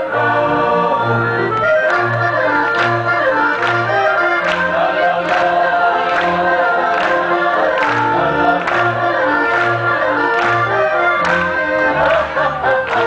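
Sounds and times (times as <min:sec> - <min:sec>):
instrumental folk accompaniment: 0:00.0 - 0:13.0
men singing in chorus: 0:04.5 - 0:10.2, 0:11.7 - 0:13.0.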